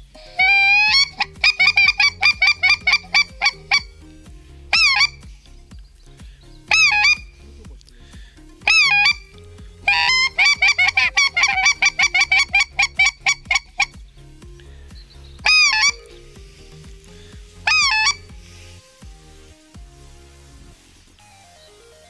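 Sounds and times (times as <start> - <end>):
goose call honks and clucks: 0.3 - 4.0, 4.7 - 5.2, 6.7 - 7.3, 8.6 - 14.0, 15.4 - 16.2, 17.6 - 18.4.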